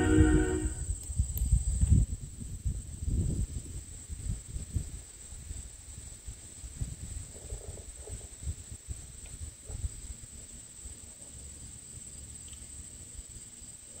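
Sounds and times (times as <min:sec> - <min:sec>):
wind rumbling on microphone: 0:00.0 - 0:10.2
insects droning: 0:00.0 - 0:14.0.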